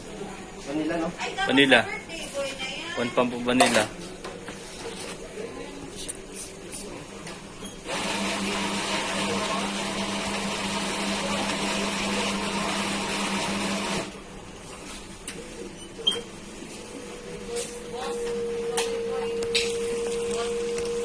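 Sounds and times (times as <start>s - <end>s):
coffee grinder motor buzz: 7.9s - 14.1s.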